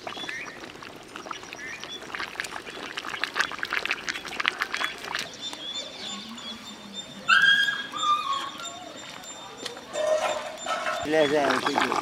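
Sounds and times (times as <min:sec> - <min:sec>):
meat crackling and popping in gravy: 0:00.0 - 0:06.3, 0:08.3 - 0:12.0
thin high animal calls: 0:05.7 - 0:11.0.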